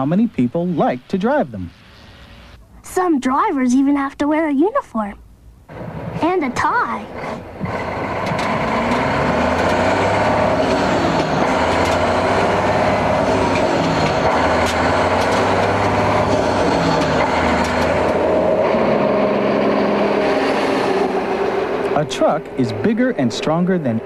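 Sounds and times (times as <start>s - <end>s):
truck engine running: 5.7s - 24.0s.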